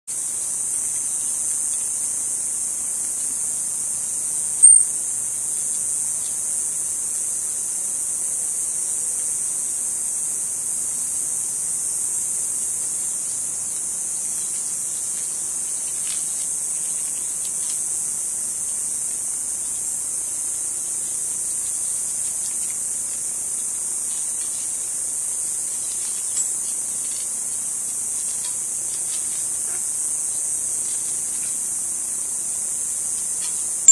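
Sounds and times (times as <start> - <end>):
high-pitched insect drone: 0.1 - 33.9.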